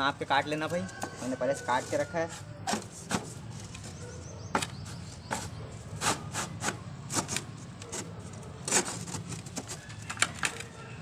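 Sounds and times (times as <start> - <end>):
board scraping wooden slats: 1.8 - 10.5.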